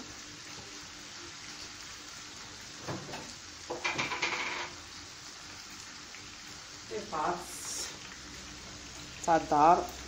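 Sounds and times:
chicken sizzling in a pan: 0:00.0 - 0:10.0
clinks and knocks: 0:03.7 - 0:04.7.

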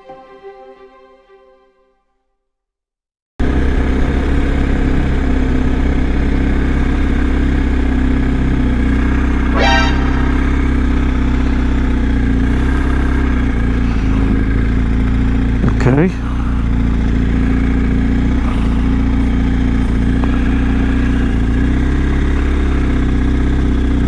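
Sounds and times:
motorcycle engine running: 0:03.4 - 0:24.0
brief high-pitched tone: 0:09.5 - 0:11.6.

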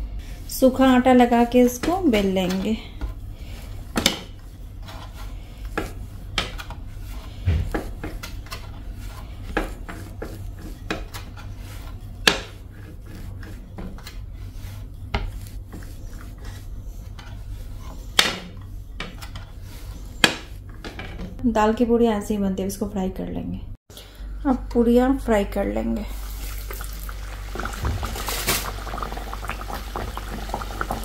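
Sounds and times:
rolling pin rolling dough: 0:00.5 - 0:21.4.

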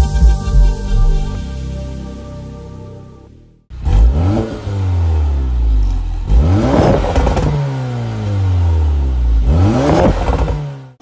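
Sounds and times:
car engine revving: 0:03.7 - 0:11.0.

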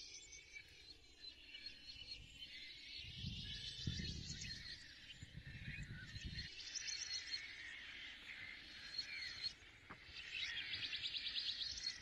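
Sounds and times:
bird-like chirps and trills: 0:00.0 - 0:12.0.

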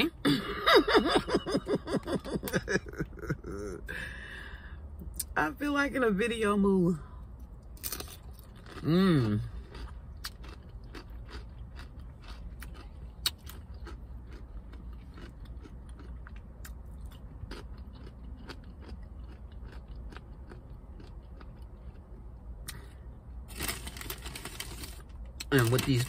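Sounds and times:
low steady hum: 0:00.0 - 0:26.0
chewing and crunching chips: 0:07.4 - 0:26.0.

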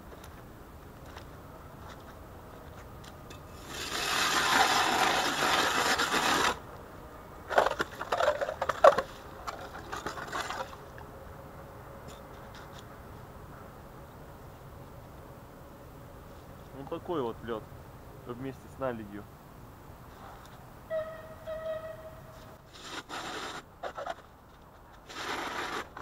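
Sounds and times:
ice auger grinding: 0:03.6 - 0:06.6, 0:25.1 - 0:26.0
ice scrapes and knocks: 0:03.6 - 0:06.6, 0:07.5 - 0:10.8, 0:22.7 - 0:24.3, 0:25.0 - 0:26.0.

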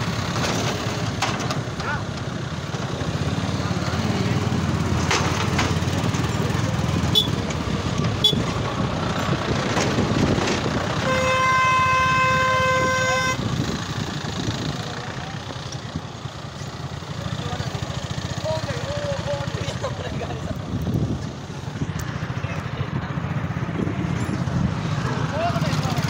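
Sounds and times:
motorcycle engine running: 0:00.0 - 0:26.0
wind and road noise: 0:00.0 - 0:26.0
vehicle horn: 0:07.1 - 0:07.4, 0:08.2 - 0:08.5, 0:11.0 - 0:13.4.

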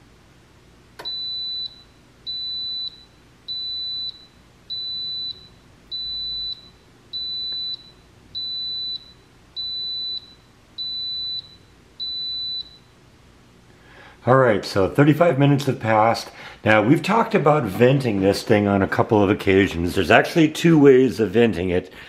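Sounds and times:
pressure cooker beeping: 0:01.0 - 0:12.8.

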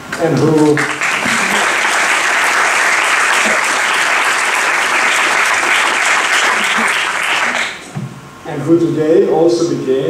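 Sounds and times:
audience applauding: 0:00.2 - 0:07.9.

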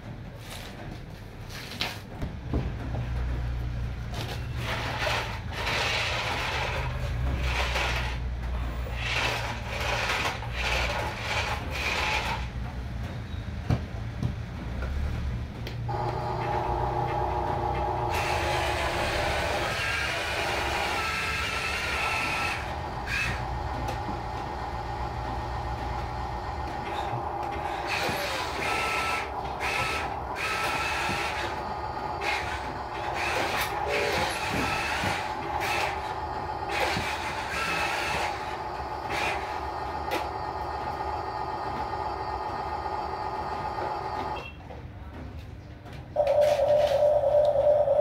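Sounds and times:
toy vehicle motors whirring: 0:04.3 - 0:12.6, 0:15.9 - 0:24.2, 0:26.8 - 0:40.4.

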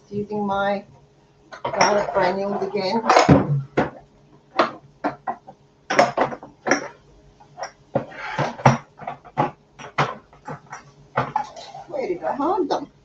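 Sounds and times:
jars knocking and clinking: 0:01.5 - 0:04.0, 0:04.6 - 0:11.8.

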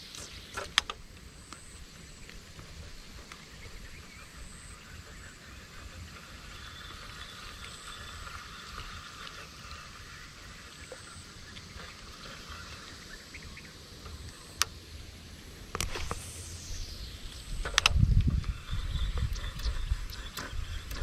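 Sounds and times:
faint high buzz: 0:00.0 - 0:21.0
wildlife chorus: 0:00.0 - 0:21.0
low rumble: 0:15.3 - 0:21.0.

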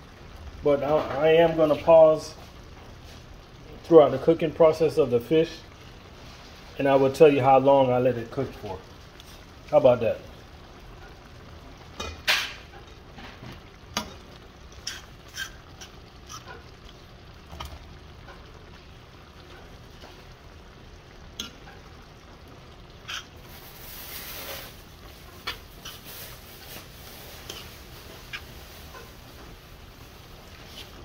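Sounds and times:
metal utensils scraping in a pan: 0:11.9 - 0:13.4, 0:14.0 - 0:16.8, 0:21.4 - 0:22.0, 0:23.0 - 0:31.0
hot sauce hissing: 0:13.9 - 0:17.5, 0:18.4 - 0:31.0.

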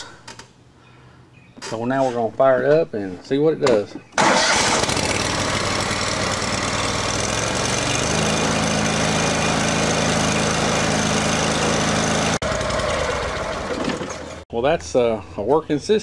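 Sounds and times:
lawn tractor engine running: 0:04.2 - 0:14.4.

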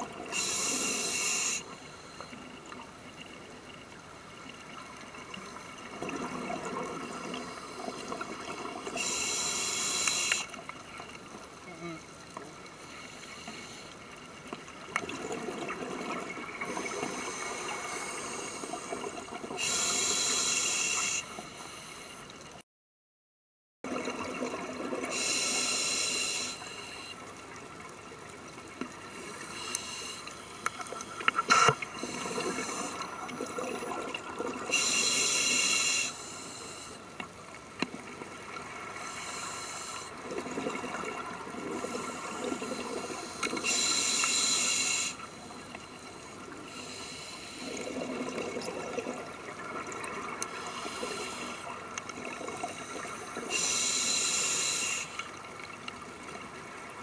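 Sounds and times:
exhaled air bubbling underwater: 0:00.0 - 0:13.6, 0:14.3 - 0:21.5, 0:23.9 - 0:57.0
regulator hiss: 0:00.3 - 0:02.5, 0:09.0 - 0:10.6, 0:19.6 - 0:22.2, 0:25.1 - 0:27.1, 0:34.7 - 0:37.0, 0:41.9 - 0:47.8, 0:50.5 - 0:51.7, 0:52.6 - 0:55.2.

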